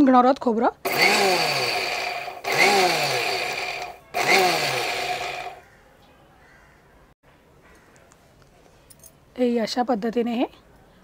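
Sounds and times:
mixer grinder motor whirring: 0.8s - 5.6s.

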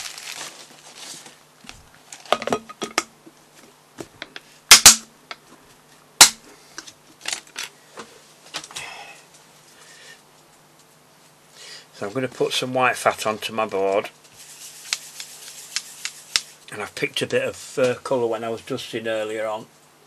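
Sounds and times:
plastic bag crinkling: 0.0s - 2.4s.

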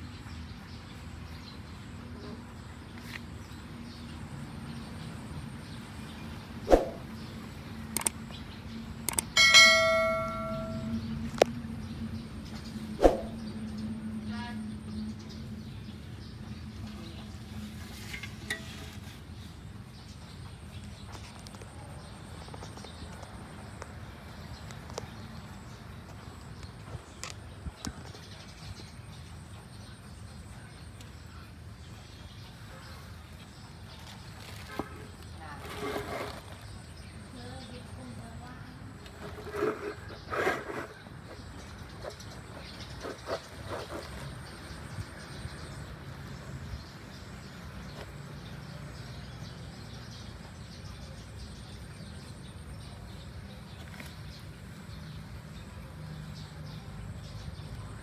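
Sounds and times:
quick clicks: 7.9s - 8.2s, 9.0s - 9.4s
low steady hum: 8.4s - 15.8s.

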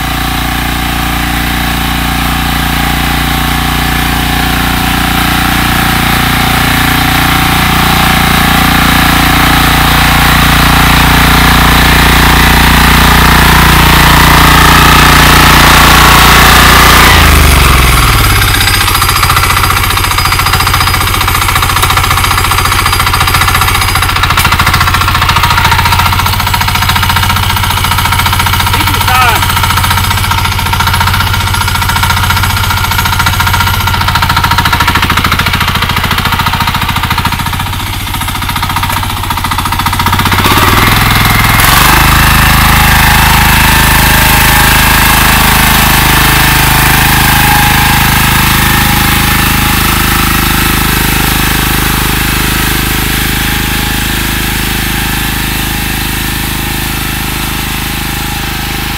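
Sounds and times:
walking tractor engine rapping: 0.0s - 58.9s.

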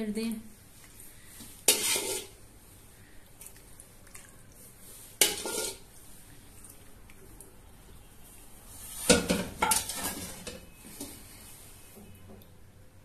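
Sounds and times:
metal ladle clattering on pan: 5.2s - 5.8s, 9.1s - 10.6s.

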